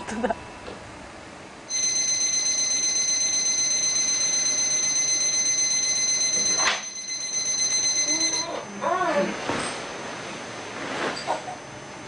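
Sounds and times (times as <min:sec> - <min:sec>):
electronic alarm ringing: 0:01.7 - 0:08.7.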